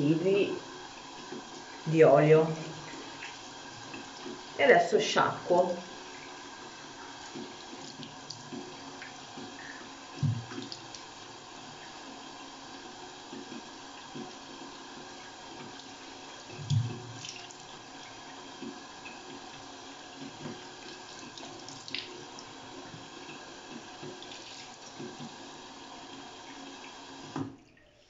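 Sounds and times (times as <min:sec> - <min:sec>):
sink tap running: 0:00.0 - 0:27.7
low thump: 0:10.2 - 0:10.5
water splashing: 0:15.6 - 0:17.8.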